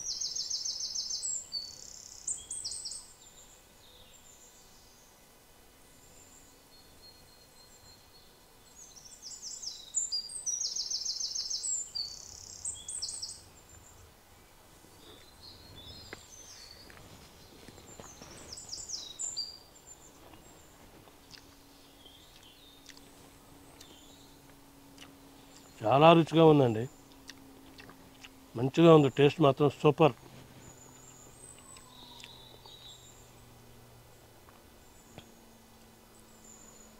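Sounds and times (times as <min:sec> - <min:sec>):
songbird trilling: 0:00.0 - 0:03.2, 0:08.8 - 0:14.0, 0:15.0 - 0:20.6, 0:23.8 - 0:33.4
faint outdoor background noise: 0:00.0 - 0:36.9.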